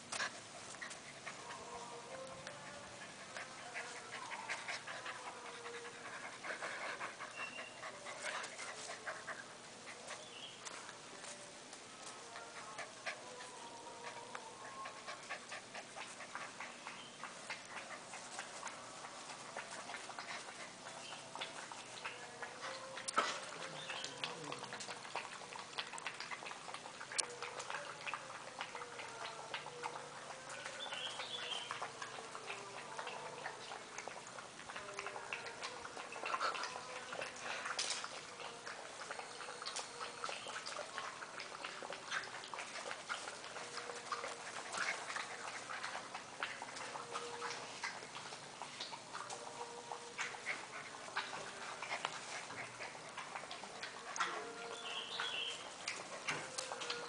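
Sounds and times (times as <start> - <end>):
puppies scuffling on grass: 15.2 - 25.6.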